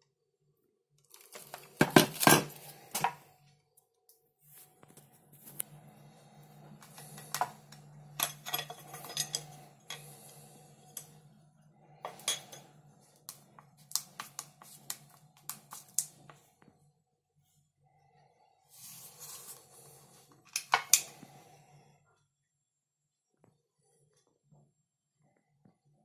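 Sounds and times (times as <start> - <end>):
steady low hum: 4.8 - 22.0.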